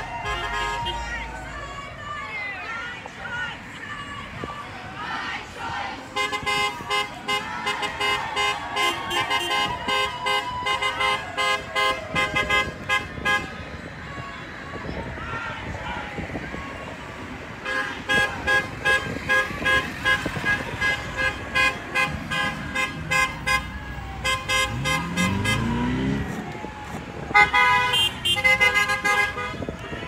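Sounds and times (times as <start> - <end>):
car horns honking: 0.0 - 1.9, 6.1 - 13.6, 17.6 - 26.4, 27.3 - 30.0
car engine revving past: 24.6 - 26.7.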